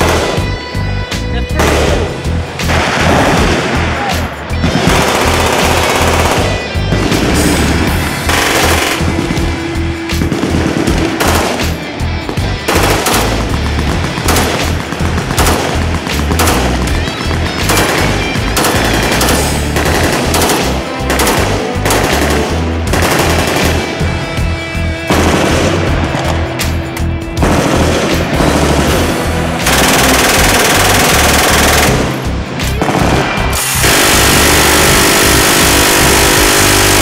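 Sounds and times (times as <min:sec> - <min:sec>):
automatic rifle fire: 0:00.0 - 0:00.5, 0:01.6 - 0:09.4, 0:10.1 - 0:11.8, 0:12.7 - 0:24.0, 0:25.1 - 0:26.4, 0:27.4 - 0:32.2, 0:32.8 - 0:37.0
background music: 0:00.0 - 0:37.0.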